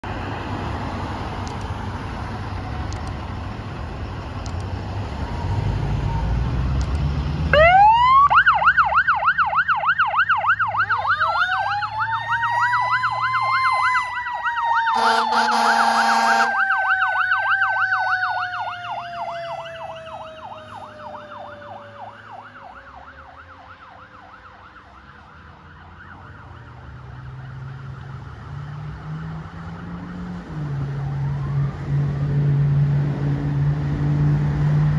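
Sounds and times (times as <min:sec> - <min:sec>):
traffic rumble: 0:00.0 - 0:34.9
yelping siren: 0:05.1 - 0:06.6, 0:07.5 - 0:32.3
truck horn blast: 0:14.9 - 0:16.6.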